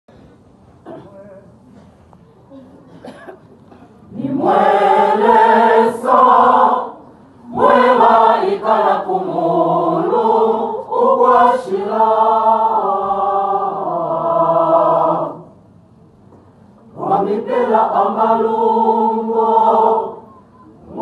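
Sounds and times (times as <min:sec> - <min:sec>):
choir singing in harmony: 0:04.1 - 0:15.6, 0:16.9 - 0:21.0.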